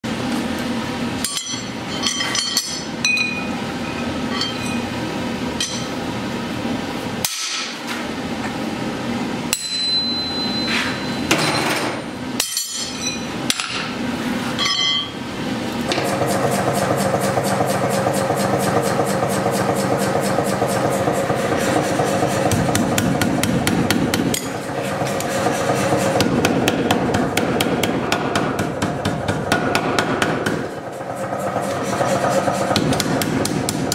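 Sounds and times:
power hammer beating steel: 0:16.0 - 0:33.9.

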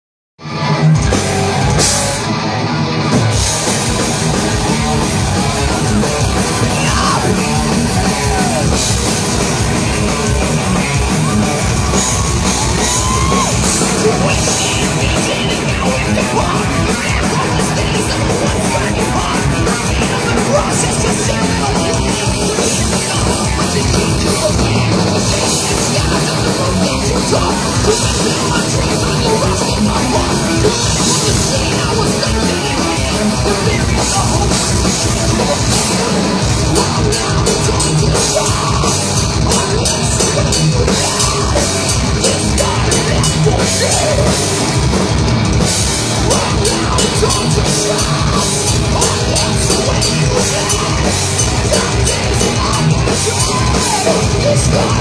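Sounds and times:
metal band playing: 0:00.4 - 0:55.0
yelled vocals: 0:00.5 - 0:55.0.

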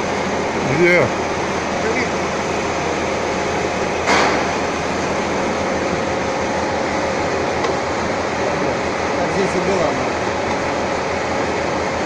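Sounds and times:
workshop machinery running: 0:00.0 - 0:12.0
sharp metallic clank: 0:04.0 - 0:04.6.

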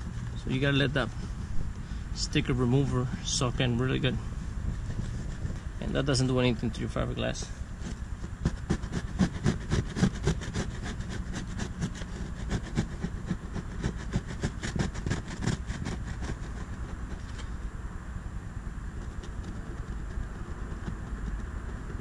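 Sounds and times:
low steady rumble: 0:00.0 - 0:22.0
cloth pad scrubbing boat hull: 0:07.8 - 0:17.2.

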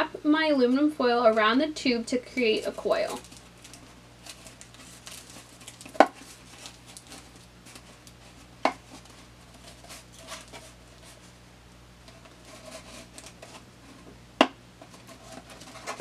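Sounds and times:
aluminium foil crinkling: 0:02.4 - 0:11.4, 0:12.0 - 0:14.0, 0:14.8 - 0:16.0.

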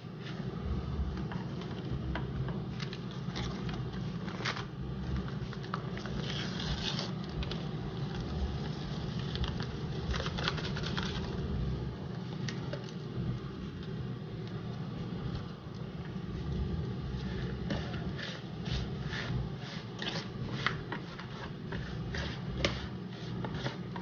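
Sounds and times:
air fryer fan hum: 0:00.0 - 0:24.0
seasoning packet shaken: 0:09.1 - 0:11.4.

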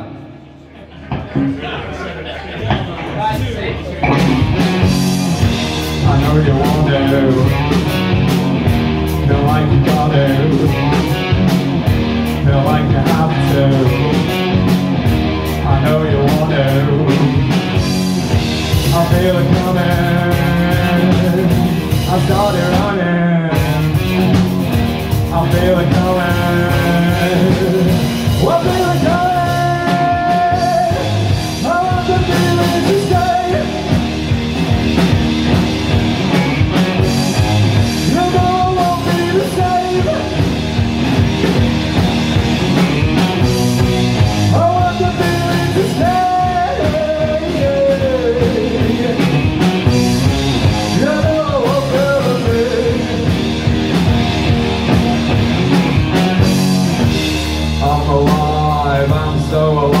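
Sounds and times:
drum kit: 0:02.6 - 1:00.0
electric guitar: 0:03.9 - 1:00.0
person singing: 0:05.9 - 0:08.1, 0:09.1 - 0:11.3, 0:12.3 - 0:14.6, 0:15.5 - 0:17.7, 0:18.8 - 0:24.0, 0:25.2 - 0:34.2, 0:37.9 - 0:40.6, 0:44.4 - 0:49.6, 0:50.8 - 0:53.4, 0:57.8 - 1:00.0.

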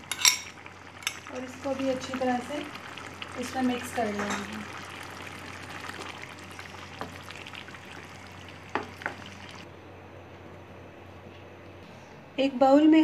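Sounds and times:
sauce sizzling in a pan: 0:00.0 - 0:09.7.

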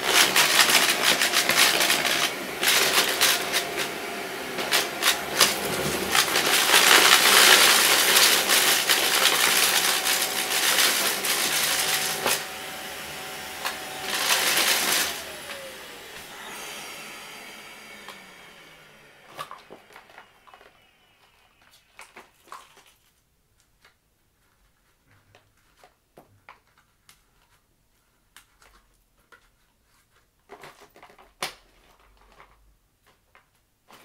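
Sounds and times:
stick vacuum motor winding down: 0:00.0 - 0:21.6.

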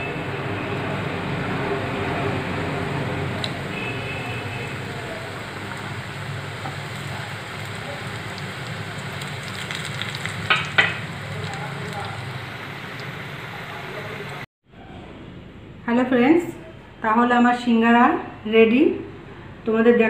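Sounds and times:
food deep-frying in oil: 0:00.0 - 0:14.5.

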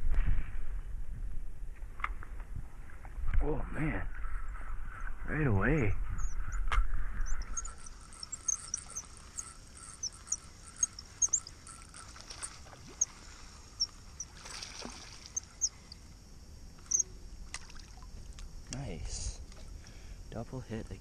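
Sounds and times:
small birds chirping: 0:03.9 - 0:16.1, 0:16.8 - 0:17.2.

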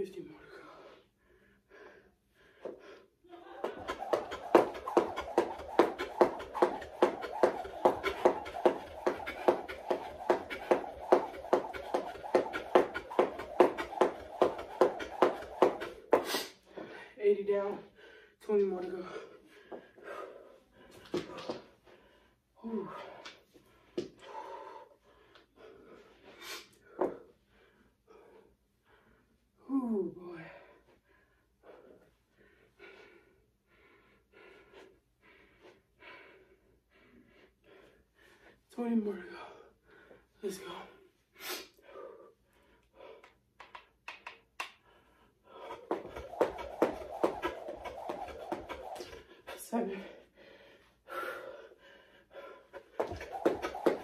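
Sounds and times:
person breathing hard: 0:00.4 - 0:17.2, 0:19.0 - 0:29.6, 0:30.6 - 0:38.7, 0:41.3 - 0:43.5, 0:44.7 - 0:54.0
jump rope hitting floor: 0:03.6 - 0:16.4, 0:21.0 - 0:21.7, 0:45.7 - 0:49.3, 0:52.8 - 0:54.0.

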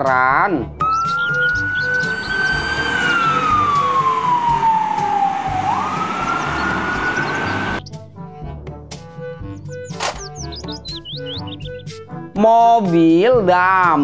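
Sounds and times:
fire engine siren wailing: 0:00.8 - 0:07.8.

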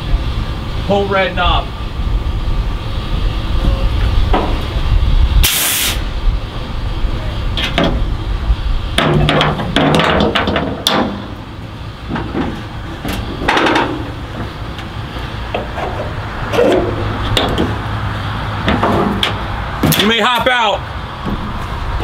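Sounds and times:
clunks and knocks: 0:04.3 - 0:04.7, 0:07.6 - 0:08.1, 0:08.9 - 0:17.9, 0:18.6 - 0:20.5, 0:21.2 - 0:21.8
air brake hiss: 0:05.4 - 0:06.1.

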